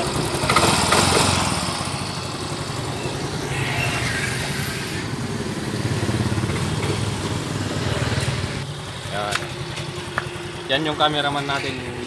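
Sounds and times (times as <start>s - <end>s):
scooter engine idling: 0.0s - 12.0s.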